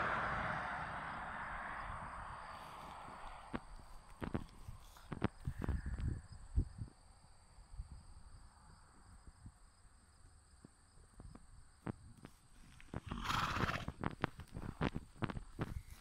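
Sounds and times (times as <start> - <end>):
horse snort: 13.0 - 14.0.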